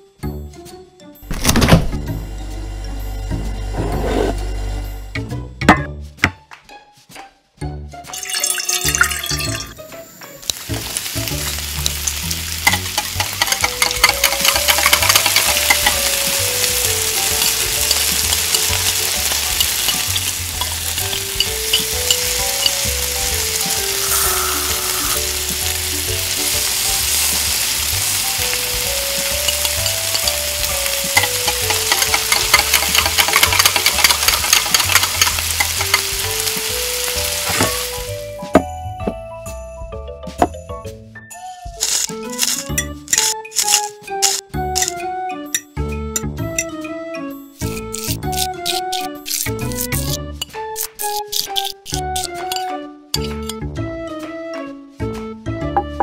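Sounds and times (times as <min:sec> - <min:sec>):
light background melody: 0:00.0 - 0:56.0
vegetables sizzling in hot oil: 0:10.2 - 0:38.3, 0:41.8 - 0:44.9, 0:47.6 - 0:50.2
utensil stirring in wok: 0:10.6 - 0:38.2.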